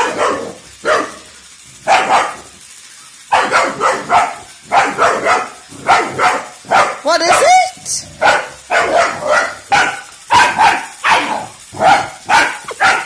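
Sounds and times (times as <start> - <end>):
puppy barking: 0.0 - 2.6, 3.3 - 13.0.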